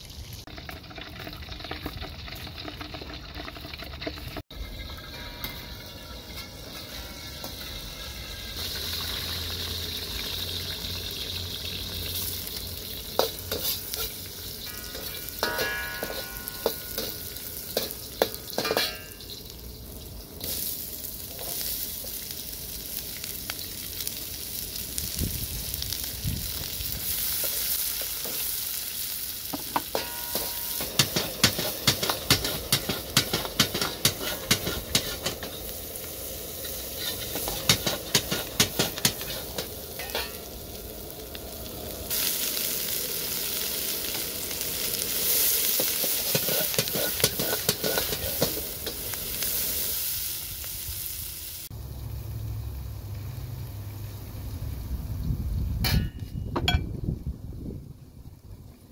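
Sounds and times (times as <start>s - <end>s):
food sizzling in a frying pan: 0.0s - 58.9s
utensil scraping a pan: 13.2s - 19.2s, 29.9s - 35.7s, 36.6s - 40.4s, 45.8s - 49.0s.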